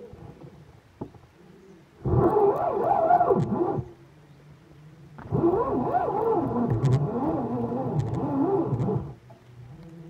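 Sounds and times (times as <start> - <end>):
fishing reel whirring: 2.0 - 3.9, 5.3 - 9.2.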